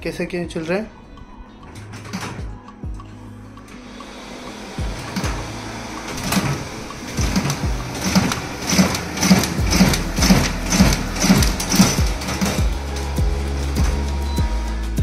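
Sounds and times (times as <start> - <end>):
duplicator printing rhythmically: 3.6 - 15.0.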